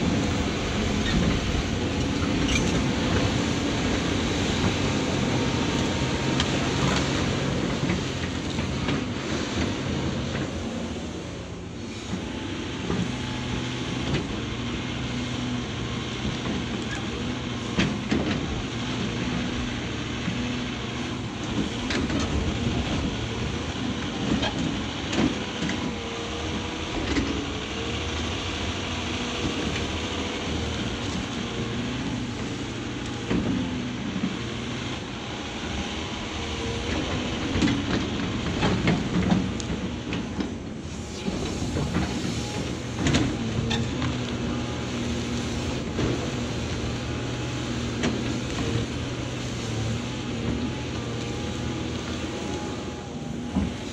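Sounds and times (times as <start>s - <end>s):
excavator diesel engine whining: 0.0s - 53.9s.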